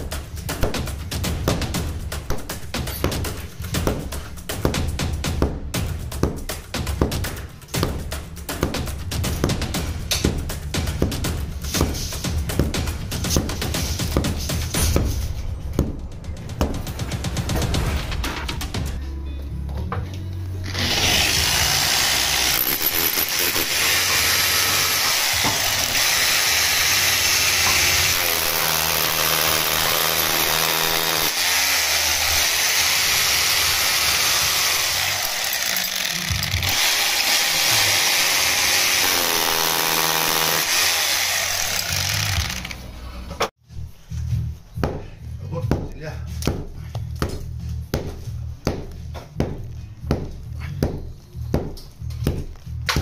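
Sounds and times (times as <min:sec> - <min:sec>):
rotary hammer drilling into brick: 0:20.7 - 0:42.8.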